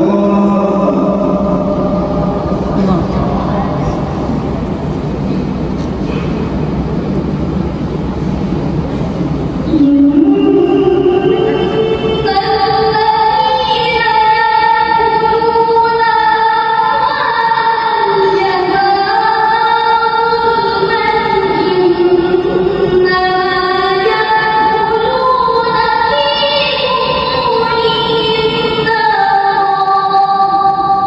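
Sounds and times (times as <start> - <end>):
woman reciting melodically: 9.6 - 31.0.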